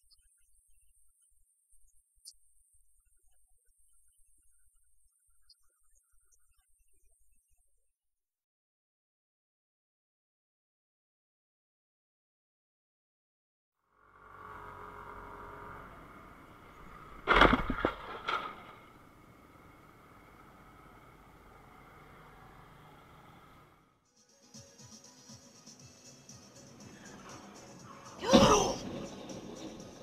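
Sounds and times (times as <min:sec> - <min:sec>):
engine and traffic hum: 0:13.9 - 0:24.0
scooter crashing on asphalt: 0:16.3 - 0:19.8.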